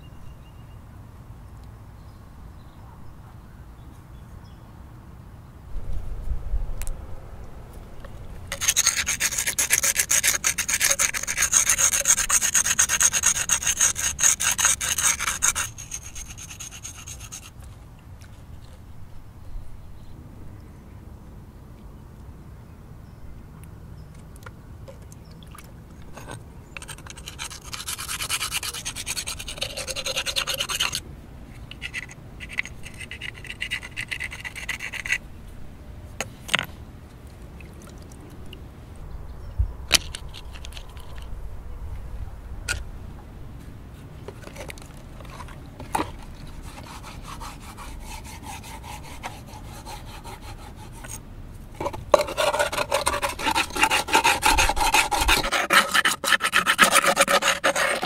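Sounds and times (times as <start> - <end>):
rubbing and scraping: 8.0 - 17.8, 26.1 - 31.0, 31.6 - 35.2, 39.9 - 41.3, 43.6 - 58.0
rasping scrape in clay bowl: 8.5 - 17.6, 26.2 - 31.0, 31.7 - 35.2, 44.4 - 51.2, 51.8 - 58.0.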